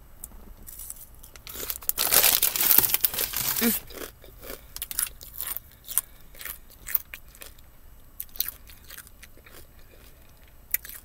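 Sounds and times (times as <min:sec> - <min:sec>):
person crunching potato chips: 0:00.7 - 0:07.6, 0:08.2 - 0:11.0.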